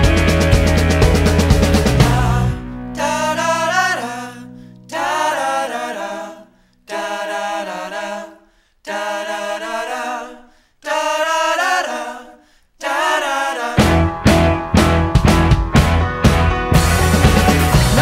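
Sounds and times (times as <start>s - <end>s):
unaccompanied singing: 1.9s - 14.0s, 17.7s - 18.0s.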